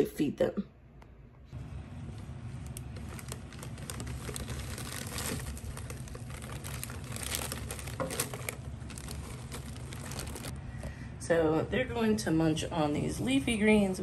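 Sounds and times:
plastic bag crinkling: 2.1s - 10.6s.

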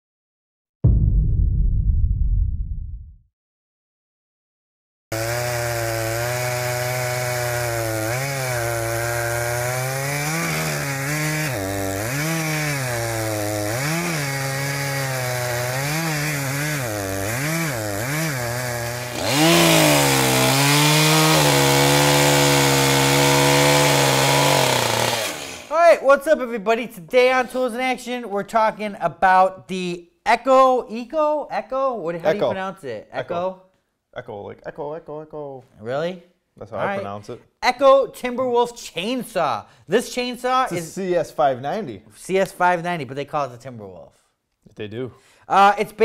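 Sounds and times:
chainsaw cutting wood: 5.1s - 25.8s.

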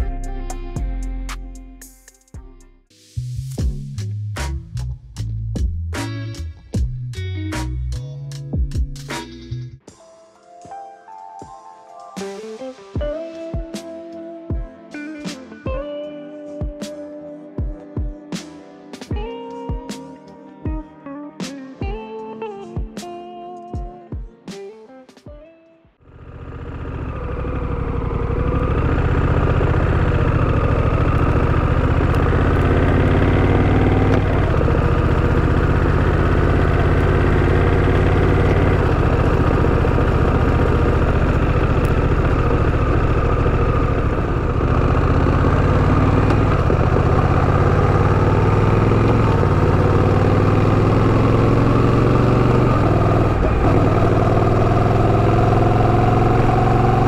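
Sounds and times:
motorcycle engine running: 26.1s - 57.0s.

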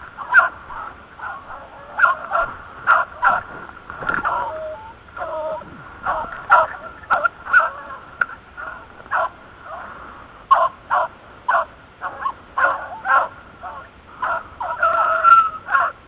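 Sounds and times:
dogs barking and yelping: 0.2s - 8.0s, 8.6s - 9.8s, 10.5s - 16.0s.

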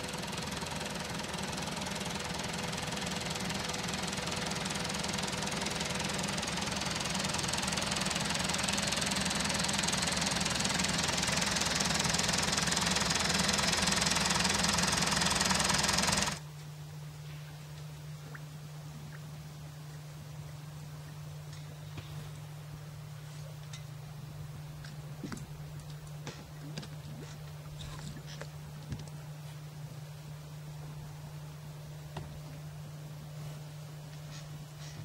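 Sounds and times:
low steady hum: 0.0s - 15.8s, 16.4s - 35.0s
tractor engine running: 0.0s - 16.4s.

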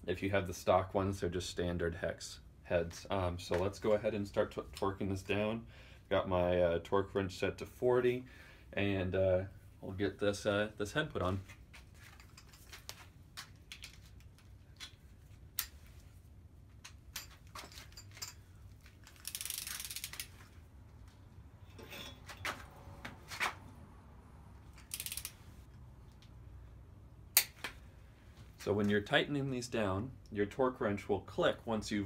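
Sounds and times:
ratcheting: 19.0s - 20.4s, 24.7s - 25.4s
torque wrench clicks: 19.1s - 20.3s, 24.8s - 25.4s.

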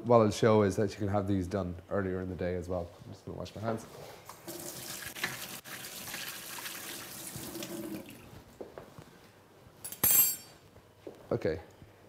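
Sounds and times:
tap water running: 4.5s - 8.3s.

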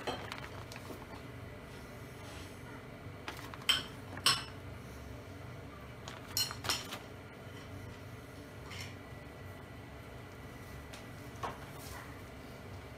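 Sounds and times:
plastic bag crinkling: 0.0s - 1.3s, 3.2s - 4.3s.

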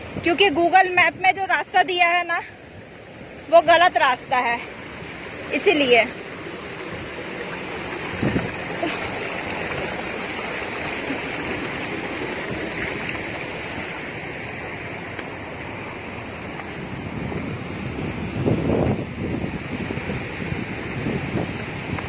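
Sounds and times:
waterfall rushing over rocks: 0.9s - 17.2s.

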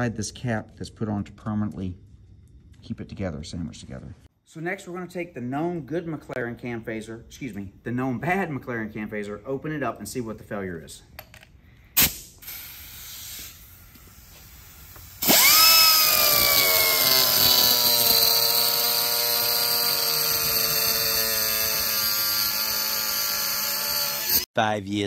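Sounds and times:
cut-off wheel grinding metal: 15.2s - 24.5s.

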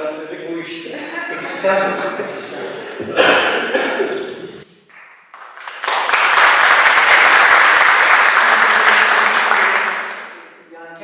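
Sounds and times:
crowd applauding: 4.9s - 10.6s.

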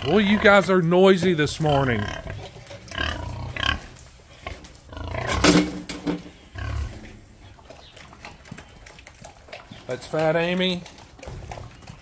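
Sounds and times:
pigs crying loudly: 0.0s - 5.7s, 6.5s - 7.3s.

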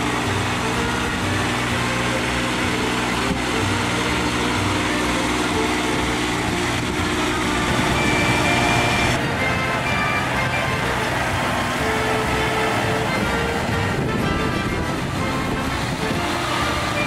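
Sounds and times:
sprayer engine running: 0.0s - 17.0s.

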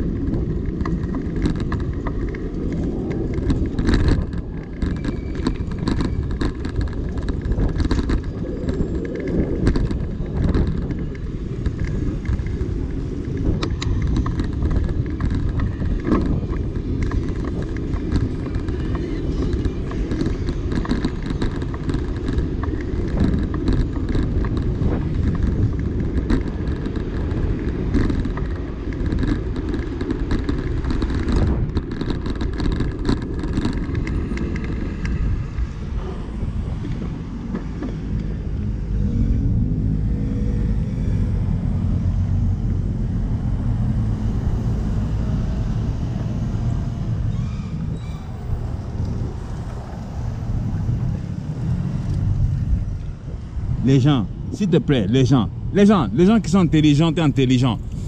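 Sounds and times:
passing cars and road noise: 0.0s - 58.0s
bus passing close by: 35.4s - 53.8s.

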